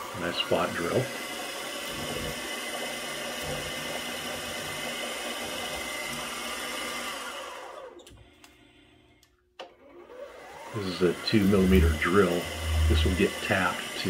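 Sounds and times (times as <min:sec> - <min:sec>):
milling machine spindle running: 0:11.4 - 0:13.4.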